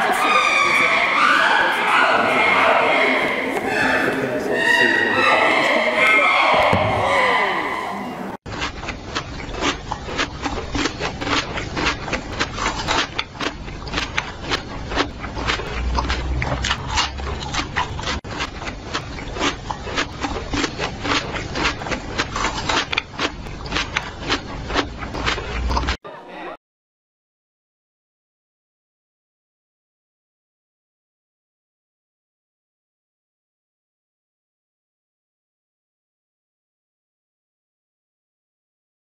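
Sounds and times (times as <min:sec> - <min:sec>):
gorilla chewing plant stalk: 0:08.5 - 0:26.0.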